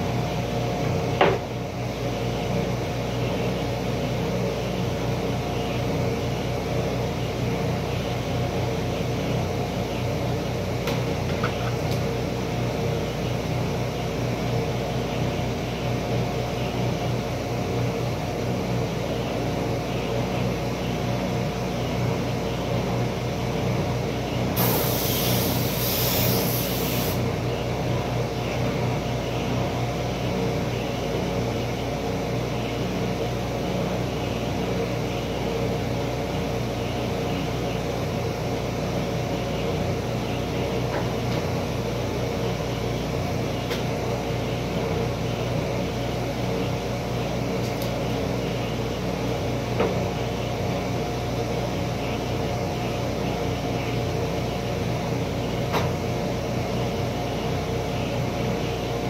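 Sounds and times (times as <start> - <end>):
sharp hiss: 24.6 - 27.3.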